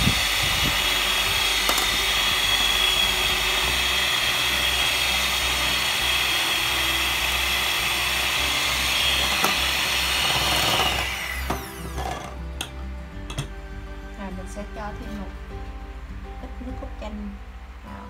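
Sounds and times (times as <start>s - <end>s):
electric hand mixer whining: 0.0s - 12.4s.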